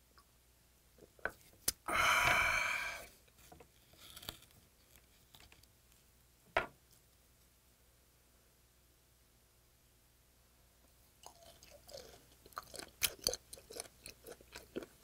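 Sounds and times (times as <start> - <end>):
raspy exhaled breath: 1.9 - 3.1.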